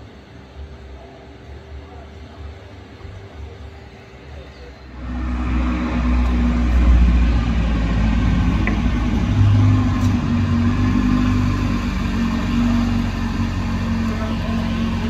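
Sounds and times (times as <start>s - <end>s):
car engine running at low revs: 4.8s - 15.0s.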